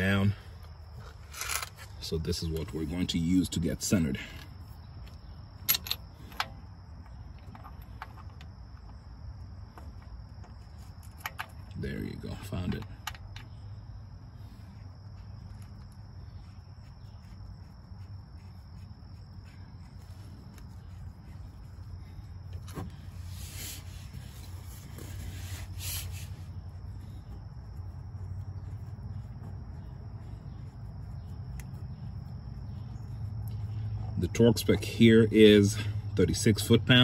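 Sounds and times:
low hum: 0.0s - 36.9s
insect chirring: 0.0s - 37.0s
short scraping sounds: 1.0s - 2.0s.

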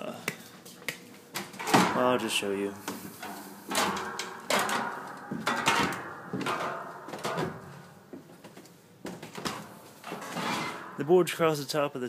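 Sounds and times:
knocks on wooden ladder: 3.7s - 7.8s.

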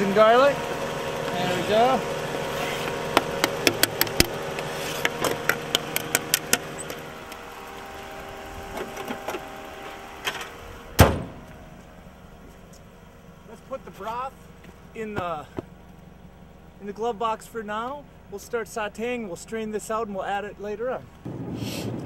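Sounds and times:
car engine idling: 0.0s - 22.0s
car hood slamming shut: 10.2s - 11.6s.

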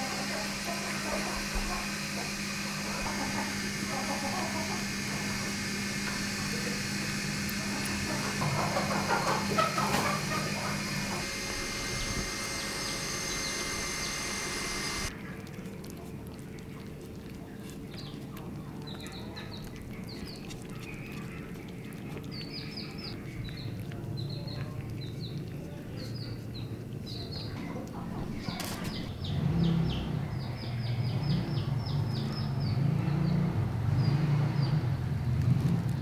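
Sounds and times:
low rumbling noise: 0.0s - 15.1s
small birds chirping: 0.0s - 36.0s.

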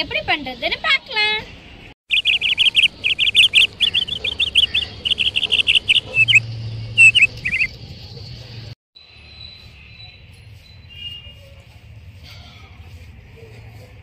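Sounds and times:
small songbird chirping: 2.1s - 7.8s.

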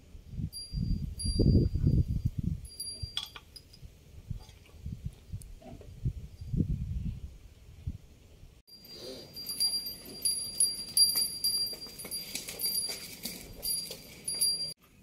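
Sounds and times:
cow bells jingling: 0.6s - 3.7s, 8.7s - 14.8s
rattle of clinks: 2.7s - 3.8s, 8.7s - 14.8s.

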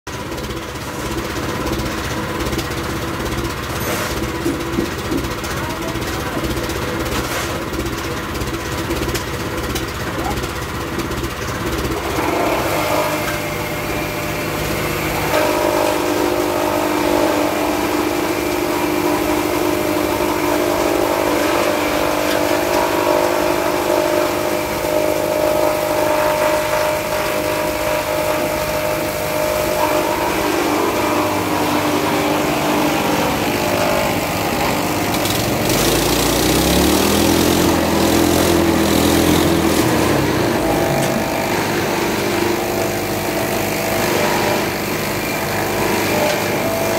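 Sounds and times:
machinery motor humming: 0.1s - 46.9s
deeper motor winding up: 11.4s - 46.9s.

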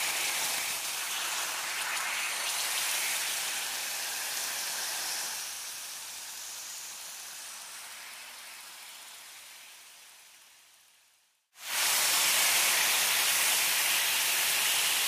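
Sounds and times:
meat sizzling on a grill: 0.0s - 8.9s.

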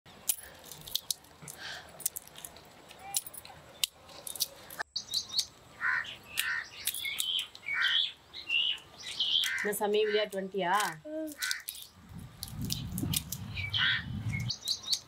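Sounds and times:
peanut shells cracking: 0.2s - 5.6s, 6.3s - 7.6s, 9.4s - 13.5s
birds chirping: 2.5s - 15.0s.

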